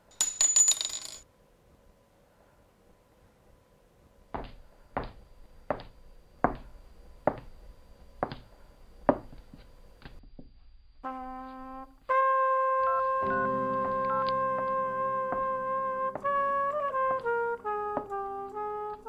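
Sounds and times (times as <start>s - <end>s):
footsteps on hard floor: 4.4s - 10.2s, 13.3s - 19.0s
short held pitched tone: 13.2s - 16.6s.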